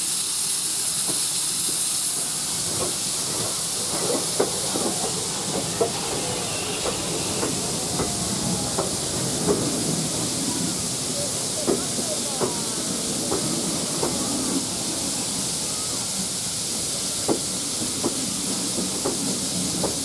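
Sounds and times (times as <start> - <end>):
steam hissing: 0.0 - 20.0
train wheels clanking: 1.0 - 15.0, 15.8 - 20.0.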